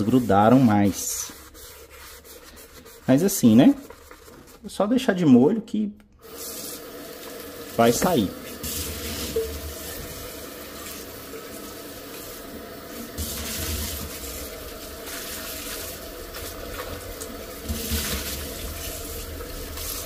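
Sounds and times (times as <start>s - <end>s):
water splashing in metal sink: 6.2s - 20.0s.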